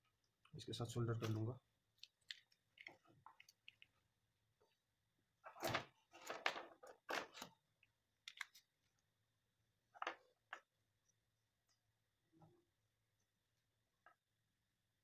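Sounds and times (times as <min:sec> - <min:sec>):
wires rustling and clicking: 0:00.2 - 0:04.8, 0:05.4 - 0:09.0.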